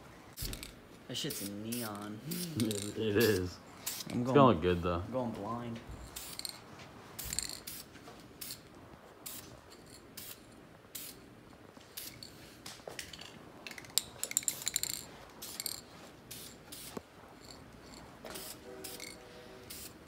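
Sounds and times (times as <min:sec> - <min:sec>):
aerosol can spraying hisses: 0:10.2 - 0:11.2, 0:15.4 - 0:17.0, 0:18.3 - 0:20.0.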